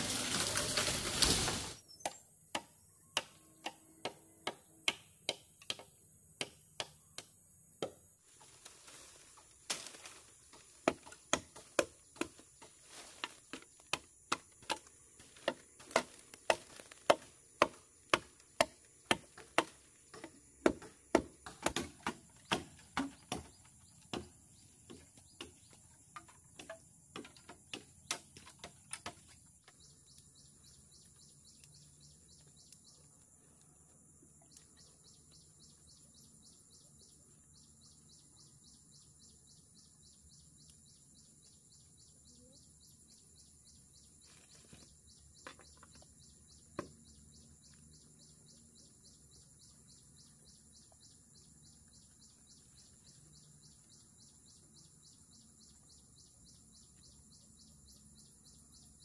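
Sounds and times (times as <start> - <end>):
insects trilling: 0.0 - 4.7, 8.3 - 59.0
chopping bamboo: 2.0 - 8.1, 9.6 - 29.8, 46.7 - 47.0.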